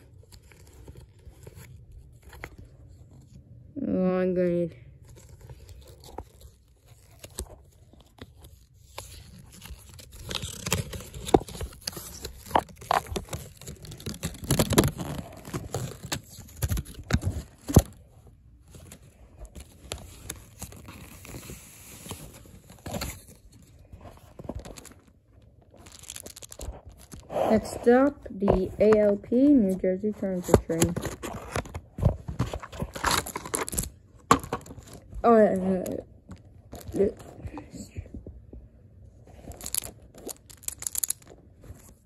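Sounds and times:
cardboard packaging rustling: 0:00.0 - 0:03.4, 0:05.0 - 0:38.4, 0:39.3 - 0:42.0
hands handling wooden toy: 0:18.6 - 0:38.5, 0:39.3 - 0:42.0.

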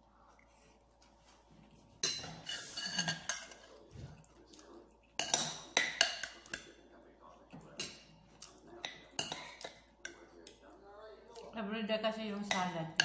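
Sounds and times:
fork clinking on a plate: 0:02.0 - 0:03.7, 0:05.2 - 0:06.7, 0:07.6 - 0:10.2
tongs clinking against a bowl: 0:02.0 - 0:10.7.

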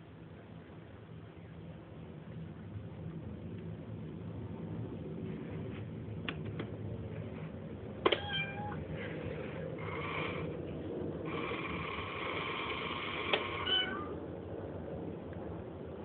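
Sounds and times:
toy cat meowing from speaker: 0:08.1 - 0:08.8, 0:13.3 - 0:14.2.

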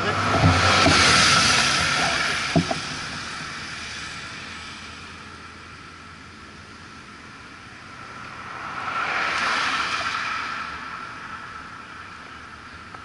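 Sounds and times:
vehicle passing by: 0:00.0 - 0:05.2, 0:07.7 - 0:12.7.

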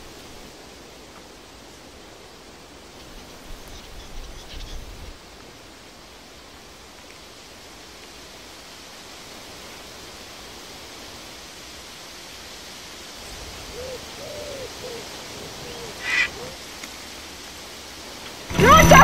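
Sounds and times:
steady outdoor hiss: 0:00.0 - 0:19.0
short low animal calls: 0:13.6 - 0:16.6
sharp animal call: 0:13.8 - 0:16.6.

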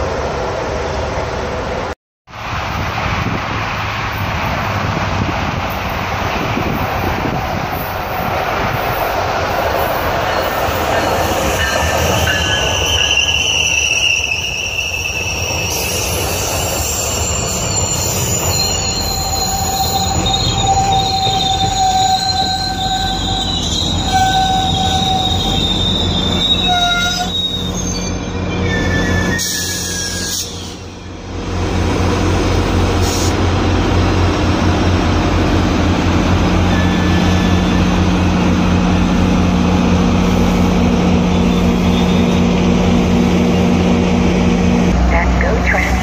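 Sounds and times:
train coaches rumbling past: 0:00.0 - 0:46.0
steel wheels squealing on rails: 0:07.7 - 0:31.2, 0:36.5 - 0:38.1, 0:40.0 - 0:43.7.

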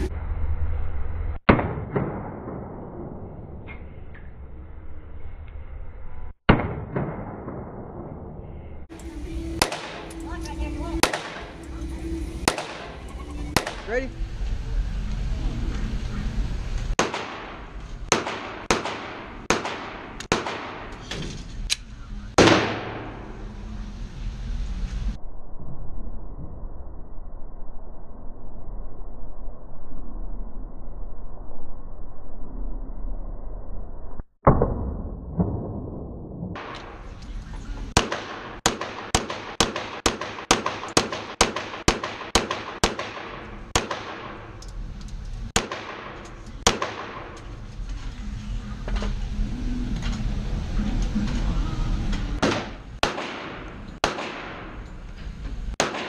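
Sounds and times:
gunshots echoing indoors: 0:01.5 - 0:03.5, 0:06.5 - 0:08.3, 0:09.4 - 0:10.3, 0:10.9 - 0:13.9, 0:16.9 - 0:21.1, 0:22.3 - 0:23.5, 0:34.4 - 0:37.2, 0:37.9 - 0:44.6, 0:45.5 - 0:47.6, 0:52.4 - 0:55.1, 0:55.7 - 0:56.0.

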